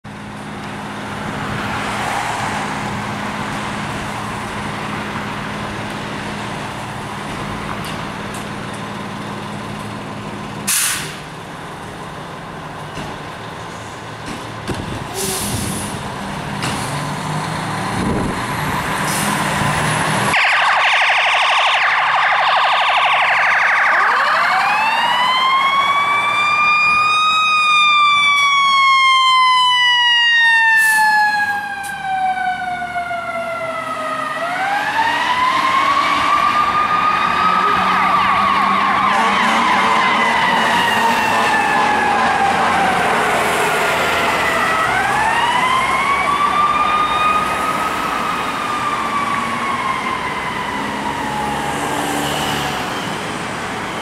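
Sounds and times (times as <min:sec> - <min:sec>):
diesel engines idling: 0:02.8 - 0:51.4
air hissing: 0:10.7 - 0:11.2
siren wailing: 0:20.3 - 0:54.0.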